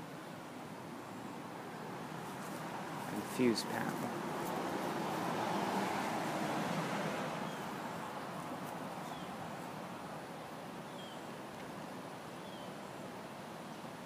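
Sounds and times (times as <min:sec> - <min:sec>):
outdoor rushing noise: 0:02.4 - 0:07.9
faint bird chirps: 0:10.8 - 0:11.3, 0:12.4 - 0:13.9.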